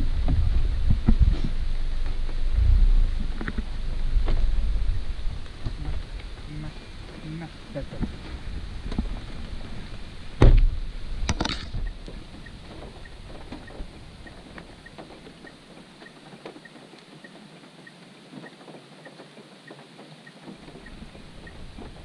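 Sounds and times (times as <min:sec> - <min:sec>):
heavy thumps: 0:00.0 - 0:06.5
faint ticks: 0:11.2 - 0:22.0.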